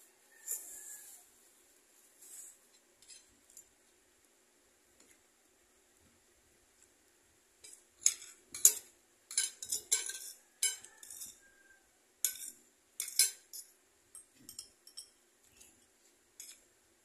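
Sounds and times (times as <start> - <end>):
cutlery scraping and clinking on plate: 3.0 - 3.6, 7.6 - 11.6, 12.2 - 15.7, 16.4 - 16.7.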